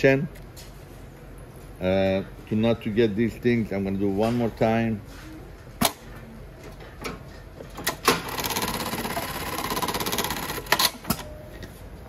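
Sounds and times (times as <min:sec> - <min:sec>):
sharp machine clacks: 0:08.0 - 0:11.1
sewing machine stitching rapidly: 0:08.1 - 0:11.0.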